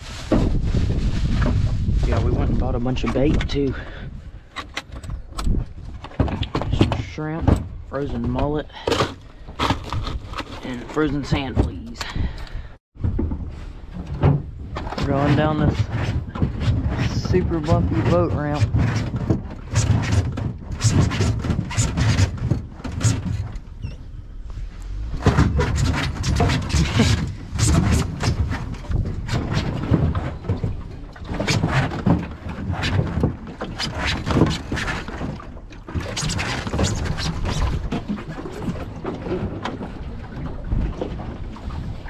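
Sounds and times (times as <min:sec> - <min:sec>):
boat trailer bumps and rattles: 0:00.0 - 0:42.0
low rumble: 0:23.6 - 0:31.2.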